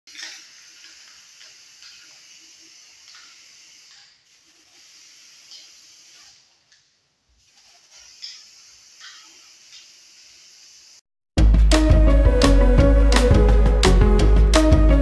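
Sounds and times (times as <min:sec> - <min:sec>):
spray-paint can hissing: 0:00.1 - 0:06.6, 0:07.4 - 0:11.0.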